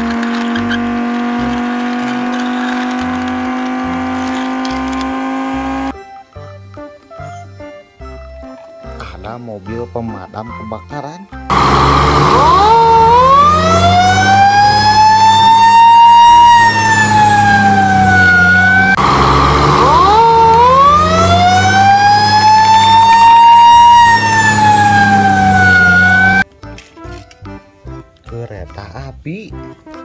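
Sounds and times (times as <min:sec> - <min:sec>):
fire engine siren wailing: 0:00.0 - 0:05.9, 0:11.5 - 0:26.4.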